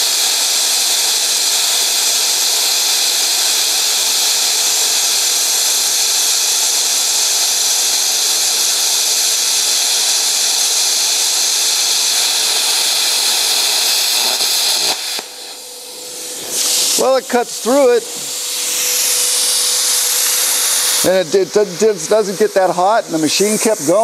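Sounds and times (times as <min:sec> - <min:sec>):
plasma cutter hissing: 0:00.0 - 0:24.0.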